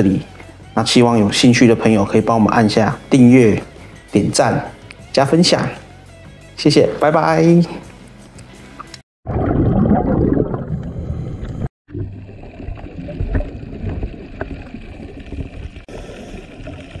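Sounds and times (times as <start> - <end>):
underwater rushing and gurgling: 9.3 - 17.0.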